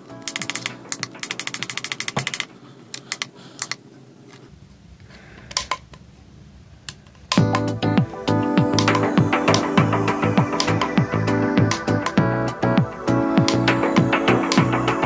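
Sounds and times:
music: 0:00.0 - 0:01.6, 0:07.4 - 0:15.0
digital clock clicking: 0:10.5 - 0:11.0.

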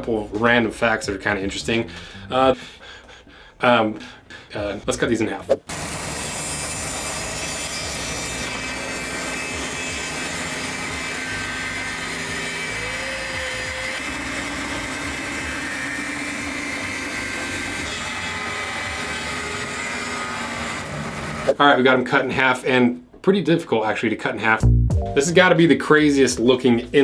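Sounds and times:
band saw cutting rubber: 0:05.5 - 0:21.6.

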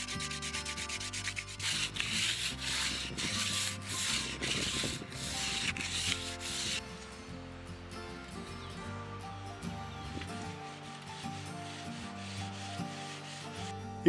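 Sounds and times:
sandpaper scratching on wood: 0:00.0 - 0:06.8, 0:10.4 - 0:13.9
soft background music: 0:00.0 - 0:14.0.

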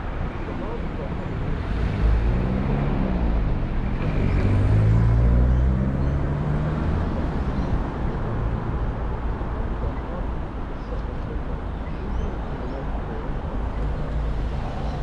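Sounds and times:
low traffic rumble: 0:00.0 - 0:15.0
car passing close by: 0:01.6 - 0:07.9.

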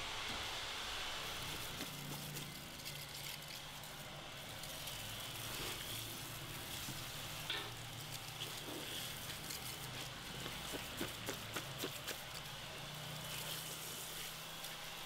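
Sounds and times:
water spraying from shower head: 0:04.6 - 0:15.0.

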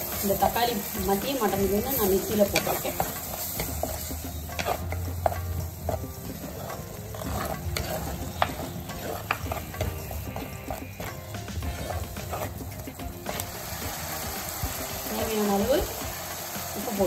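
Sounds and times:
paste sizzling in oil: 0:00.0 - 0:17.0
spatula scraping clay pot: 0:02.0 - 0:12.8.

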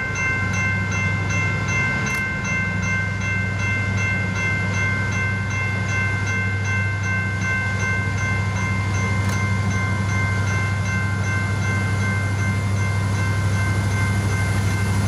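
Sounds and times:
crossing warning bell ringing: 0:00.0 - 0:15.0
freight train rumble: 0:00.0 - 0:15.0.

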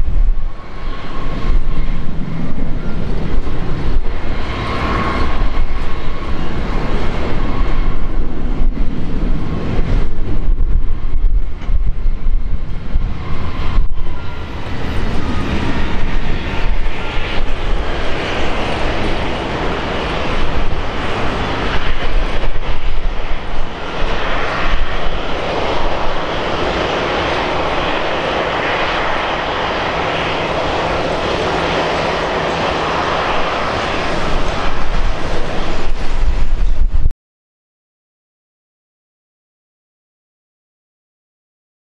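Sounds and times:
jet engine roar: 0:00.0 - 0:37.1.

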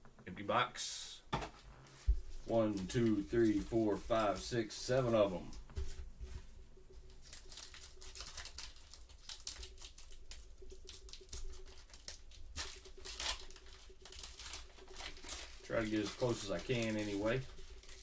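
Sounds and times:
faint steady hum: 0:00.0 - 0:18.0
cards clicking and rustling: 0:07.2 - 0:18.0.

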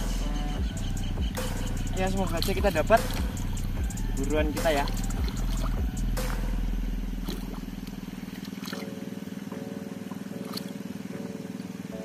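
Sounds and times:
small engine running: 0:00.0 - 0:12.0
hands splashing in muddy water: 0:02.3 - 0:03.6, 0:04.6 - 0:06.5, 0:07.2 - 0:09.0.

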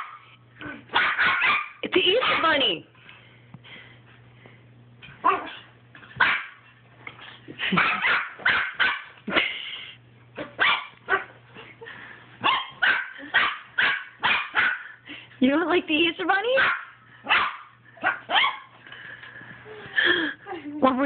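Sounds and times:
puppy barking: 0:00.0 - 0:00.3, 0:00.9 - 0:02.6, 0:05.2 - 0:05.6, 0:06.2 - 0:06.6, 0:07.7 - 0:09.2, 0:10.4 - 0:11.4, 0:12.4 - 0:15.0, 0:16.6 - 0:18.7.

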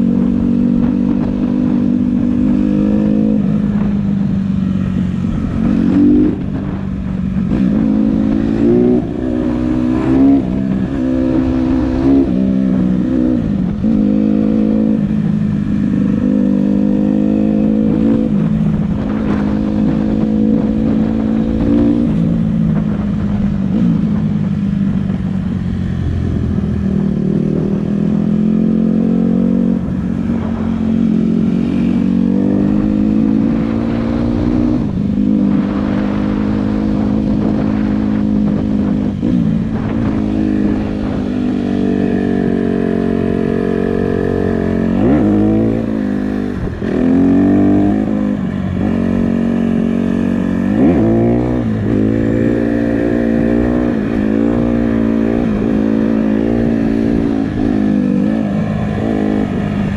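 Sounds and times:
dirt bike engine revving: 0:27.2 - 0:59.9.

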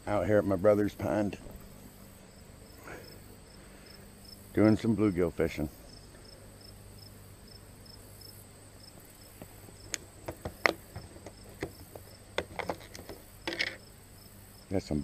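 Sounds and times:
crickets chirping: 0:00.0 - 0:15.0
plastic lid clicking and scraping: 0:09.9 - 0:13.8.

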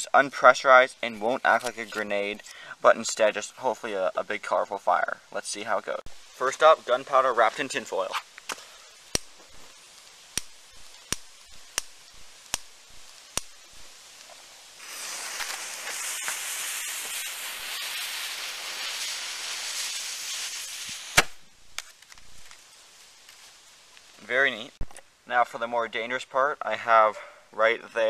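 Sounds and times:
gunpowder burning with loud hiss: 0:00.0 - 0:25.3
fuse snapping as it burns: 0:07.6 - 0:24.2
sharp pop: 0:08.4 - 0:09.6, 0:10.3 - 0:13.6, 0:20.8 - 0:21.9.

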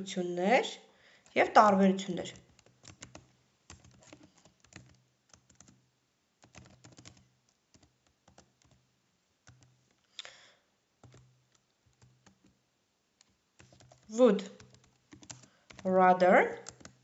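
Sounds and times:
keyboard typing: 0:01.2 - 0:05.8, 0:06.4 - 0:08.8, 0:09.4 - 0:09.9, 0:11.0 - 0:12.6, 0:13.2 - 0:17.0.

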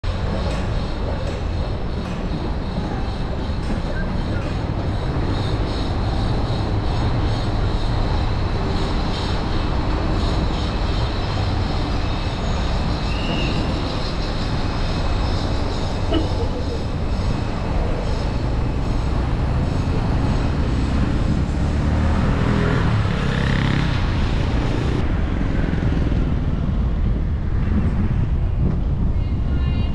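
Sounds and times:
vehicle rumble: 0:00.0 - 0:29.9.

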